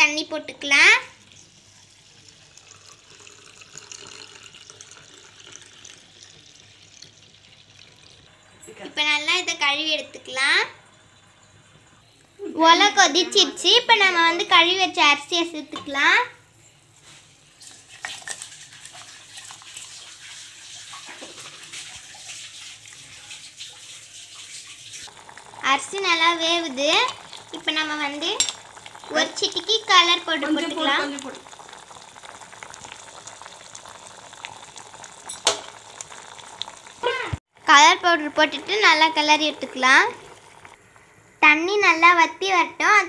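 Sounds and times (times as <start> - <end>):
water pouring onto rice: 1.2 - 8.3, 17.6 - 37.1.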